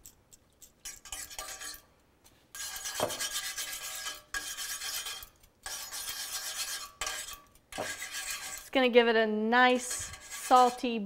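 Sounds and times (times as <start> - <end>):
whisk scraping a metal pan: 0.8 - 1.9, 2.5 - 8.9, 9.7 - 11.0.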